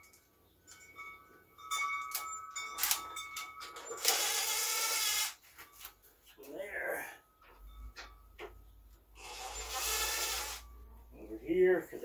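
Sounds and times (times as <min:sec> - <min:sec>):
metal tools clinking: 0:00.0 - 0:04.4
cordless drill running: 0:04.0 - 0:05.4, 0:09.2 - 0:10.6.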